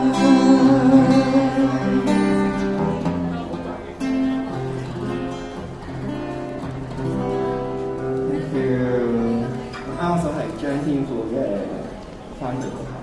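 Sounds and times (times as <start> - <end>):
acoustic guitar ballad: 0.0 - 11.1.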